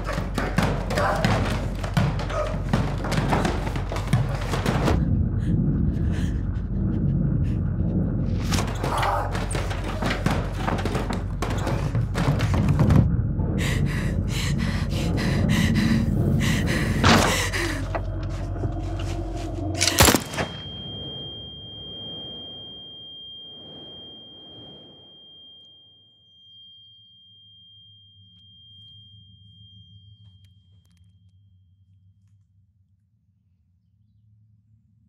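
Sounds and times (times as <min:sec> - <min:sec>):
thumps knocks and clatter: 0:00.0 - 0:05.2, 0:08.4 - 0:13.4
high-pitched ringing tone: 0:20.1 - 0:31.6.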